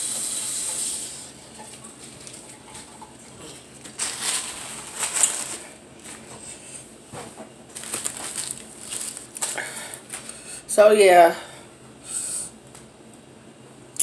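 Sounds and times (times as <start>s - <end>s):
paper towel crumpling: 3.6s - 6.7s, 7.7s - 10.5s.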